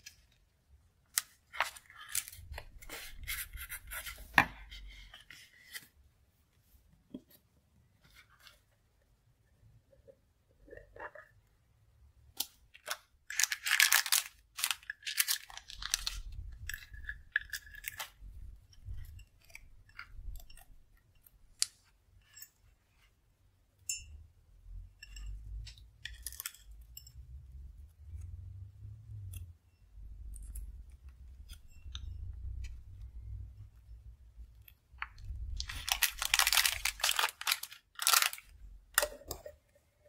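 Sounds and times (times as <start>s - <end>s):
plastic bag crinkling: 13.3s - 18.1s, 35.5s - 39.1s.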